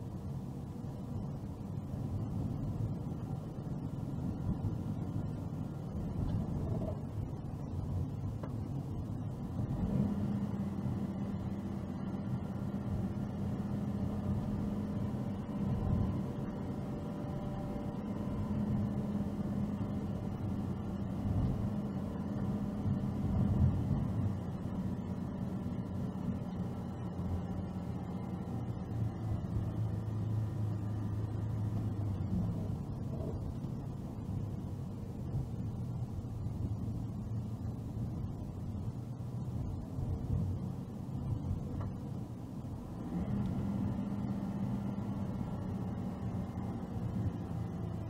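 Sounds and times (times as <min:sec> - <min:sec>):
car engine humming: 0:00.0 - 0:48.0
tyre noise on road: 0:00.0 - 0:48.0.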